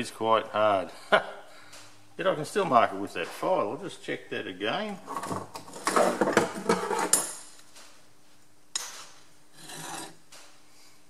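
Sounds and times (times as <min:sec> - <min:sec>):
file scraping on steel: 0:09.6 - 0:10.2.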